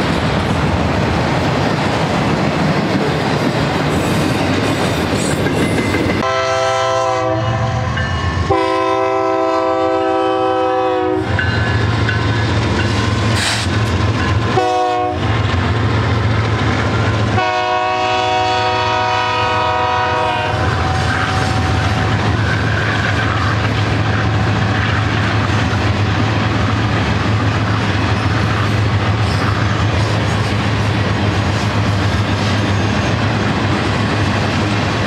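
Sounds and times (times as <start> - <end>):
diesel locomotive low rumble: 0.0 - 35.0
locomotive air horn blasts: 6.2 - 11.4, 14.5 - 15.3, 17.3 - 22.1.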